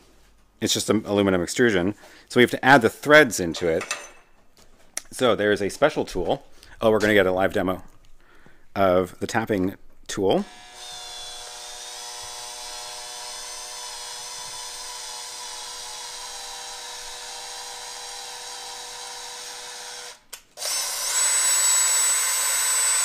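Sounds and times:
cordless drill motor whine: 0:10.5 - 0:23.0.

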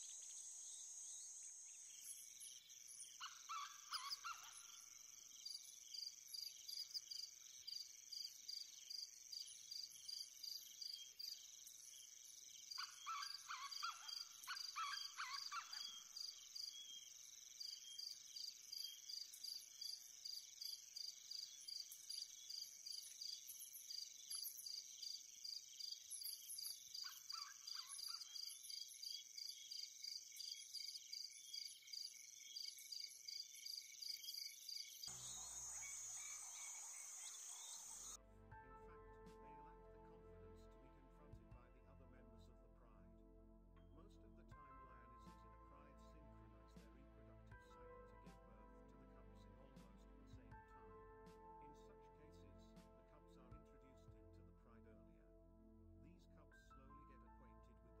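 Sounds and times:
crickets chirping: 0:00.0 - 0:38.2
insect chorus buzzing: 0:00.0 - 0:38.2
bird calling: 0:03.2 - 0:04.9, 0:12.7 - 0:16.8, 0:35.2 - 0:38.2.

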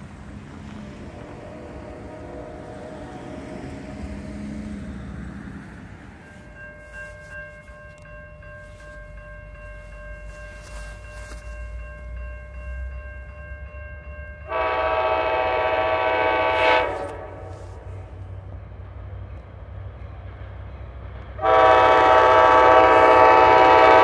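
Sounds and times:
train air horn blast: 0:01.0 - 0:06.5, 0:14.5 - 0:18.0, 0:21.4 - 0:24.0
faint ringing tone: 0:01.5 - 0:14.4.

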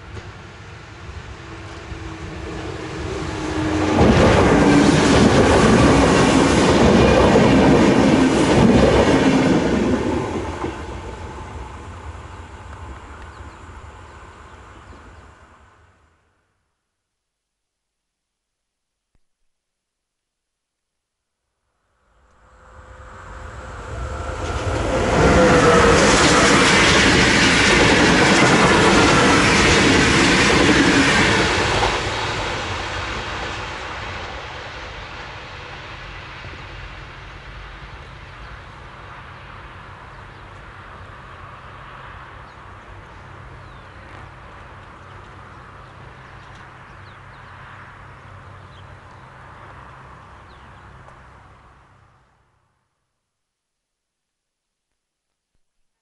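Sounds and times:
train rumble and wheel clatter: 0:00.0 - 0:15.9, 0:22.4 - 0:52.2
train whine dropping in pitch: 0:01.2 - 0:14.1, 0:22.1 - 0:33.7.

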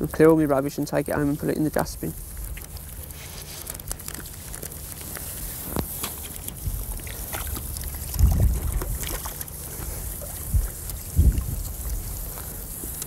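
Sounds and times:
water sloshing and splashing: 0:02.2 - 0:12.7
wind buffeting microphone: 0:06.5 - 0:12.8.

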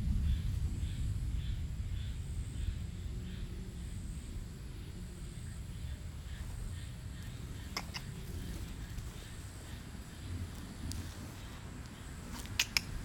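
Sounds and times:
distant thunder rolling: 0:00.0 - 0:12.2.

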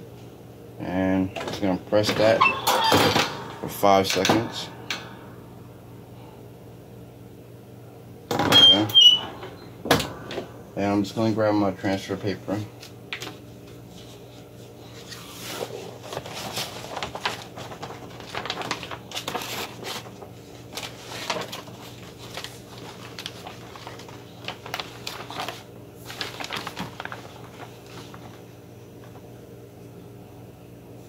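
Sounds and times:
steady low hum: 0:00.0 - 0:31.0
paper rustling and crinkling: 0:12.8 - 0:29.3.

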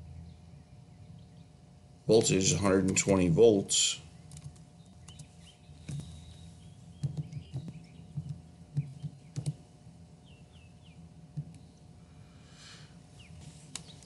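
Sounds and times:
computer keys typing: 0:04.3 - 0:06.1, 0:07.0 - 0:09.6.

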